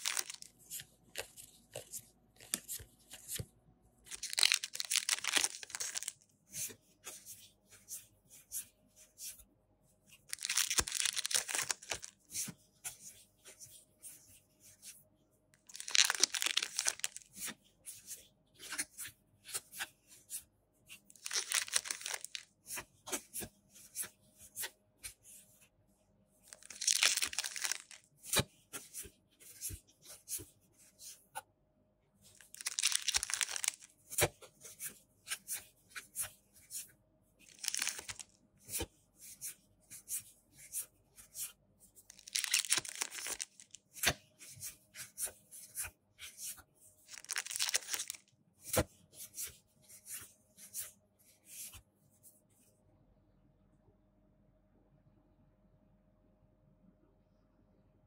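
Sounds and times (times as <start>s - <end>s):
foil packs ripping: 4.2s - 6.1s, 10.3s - 12.0s, 15.7s - 17.2s, 21.2s - 22.4s, 26.6s - 28.0s, 32.5s - 33.8s, 37.6s - 38.2s, 42.2s - 43.7s, 47.2s - 48.2s.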